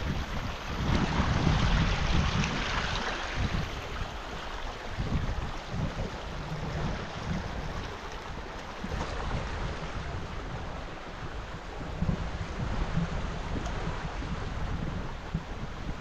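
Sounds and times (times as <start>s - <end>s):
river water rushing: 0.0s - 11.7s
wind buffeting microphone: 0.0s - 16.0s.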